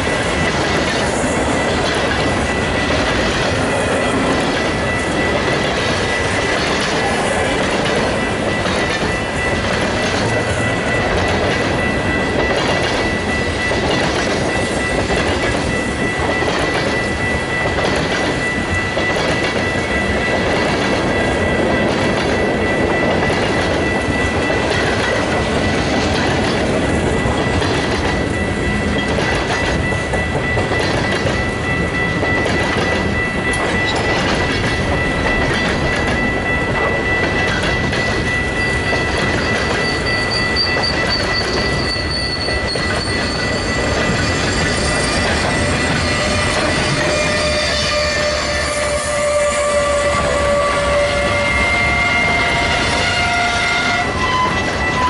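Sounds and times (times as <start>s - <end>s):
freight train rolling past: 0.0s - 55.0s
high wheel squeal: 38.2s - 55.0s.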